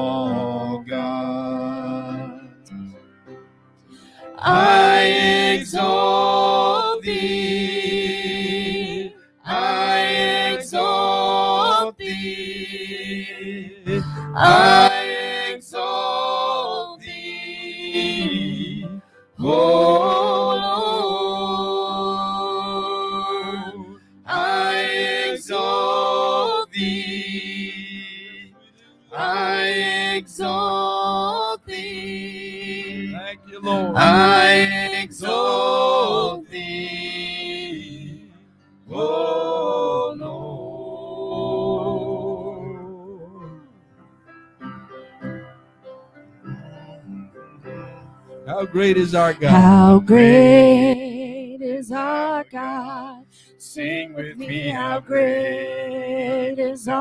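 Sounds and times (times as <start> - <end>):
keyboard accompaniment: 0.0 - 57.0
man and woman singing: 4.4 - 28.1, 29.2 - 38.0, 48.5 - 57.0.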